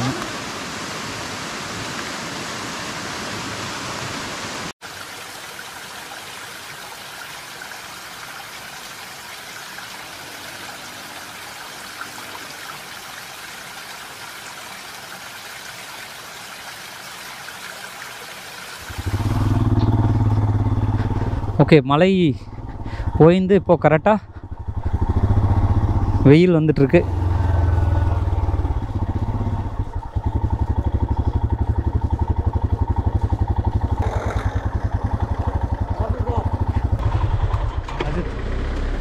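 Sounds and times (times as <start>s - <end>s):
waterfall rushing: 0.0s - 20.4s
motorcycle engine: 18.8s - 39.0s.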